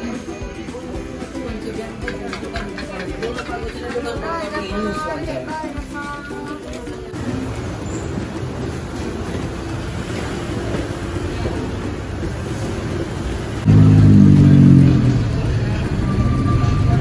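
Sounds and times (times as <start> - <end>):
low traffic din: 0.6 - 17.0
loud vehicle engine running: 7.2 - 17.0.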